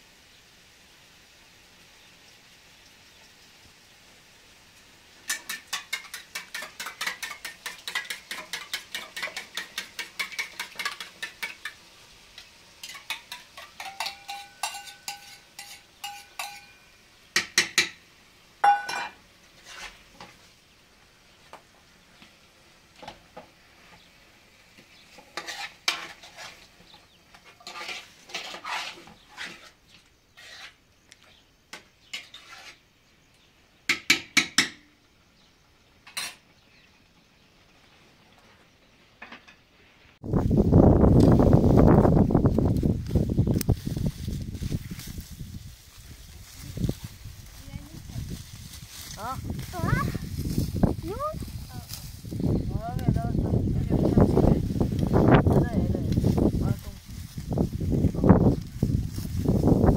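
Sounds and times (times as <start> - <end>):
metal pots and utensils clinking: 5.2 - 11.8, 12.8 - 18.0, 18.6 - 19.2, 36.1 - 36.4.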